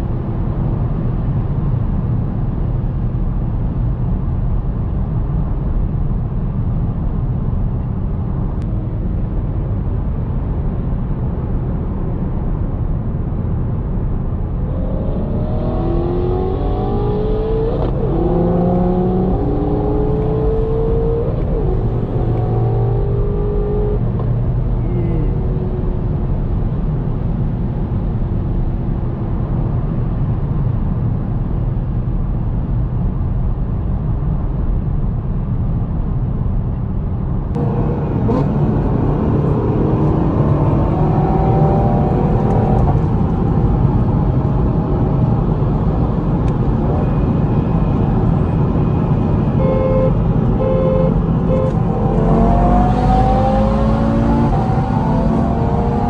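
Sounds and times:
road noise: 0.0 - 56.0
car engine accelerating: 14.5 - 26.6, 37.5 - 56.0.

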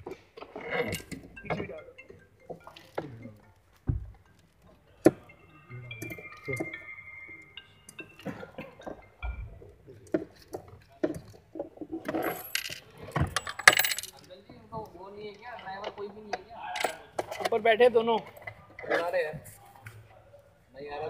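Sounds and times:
metal tool clinking on plastic: 10.0 - 14.4, 16.8 - 17.6.

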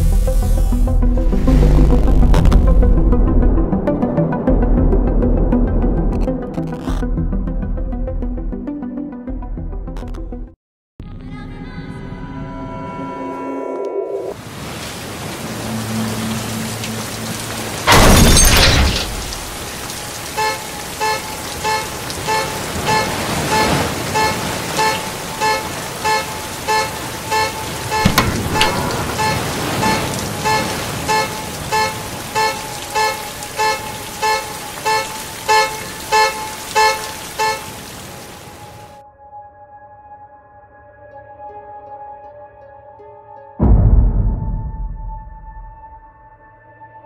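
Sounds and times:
steady rain falling: 14.4 - 39.0
loud crash: 17.9 - 19.2
car horn beeping: 17.9 - 38.5.

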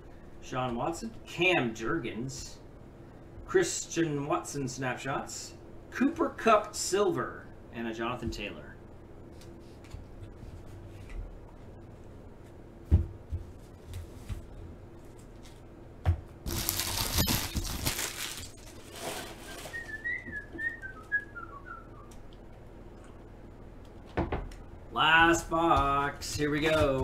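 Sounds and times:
packaging rustling: 16.5 - 20.1
person whistling a short tune: 19.4 - 22.1.

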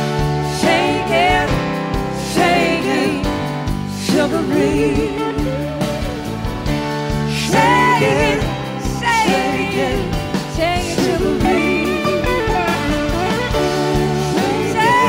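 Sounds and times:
blues-rock band playing: 0.0 - 15.0
gliding electric guitar lead: 5.4 - 15.0.

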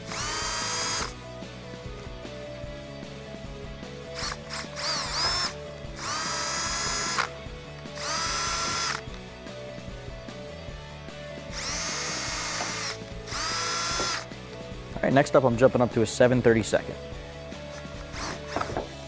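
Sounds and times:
power drill whining: 0.0 - 1.2, 4.1 - 9.2, 11.5 - 14.3, 17.6 - 18.9
background music: 0.0 - 19.0.

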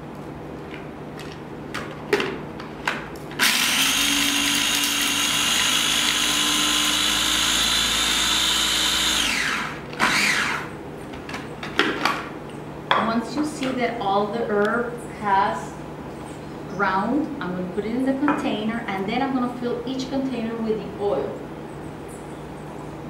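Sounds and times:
food processor motor whining: 3.4 - 10.7.

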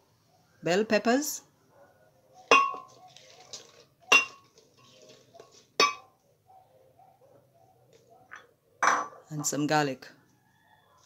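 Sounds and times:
dishware clinking: 2.5 - 3.0, 4.1 - 5.0, 5.8 - 6.0, 8.3 - 9.6.

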